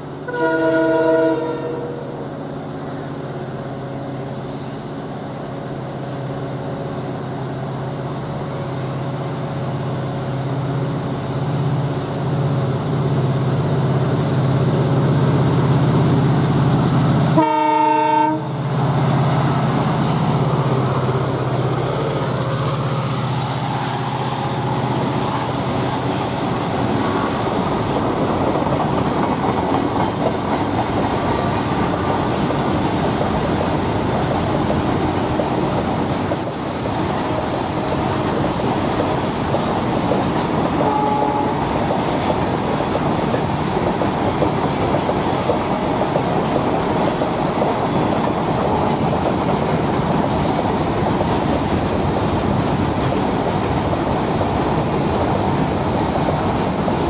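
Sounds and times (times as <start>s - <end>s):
diesel locomotive engine humming: 0.0s - 57.0s
train horn blast: 0.3s - 2.2s, 17.3s - 18.6s, 40.8s - 41.7s
wheels clacking over rail joints: 23.6s - 57.0s
faint wheel squeal: 35.5s - 38.6s, 39.5s - 40.1s.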